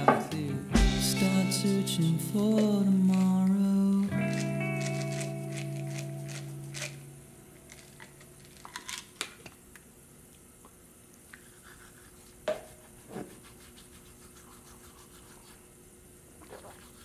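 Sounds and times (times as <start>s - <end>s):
toothbrush scrubbing teeth: 4.3s - 7.0s, 11.3s - 15.7s, 16.4s - 17.0s.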